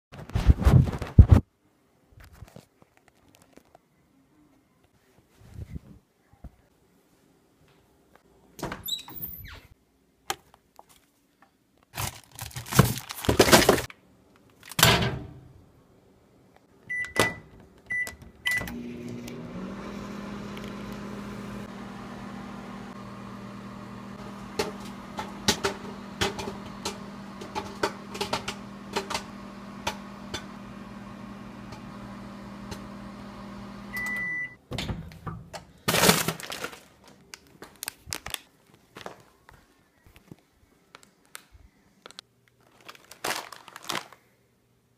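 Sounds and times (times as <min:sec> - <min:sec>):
paper bag handling: 0:11.9 - 0:13.9, 0:35.9 - 0:39.4, 0:42.0 - 0:44.3
microwave keypad beeps: 0:16.9 - 0:18.8, 0:33.9 - 0:34.6
microwave oven humming: 0:16.9 - 0:34.6
popcorn popping: 0:23.2 - 0:33.6.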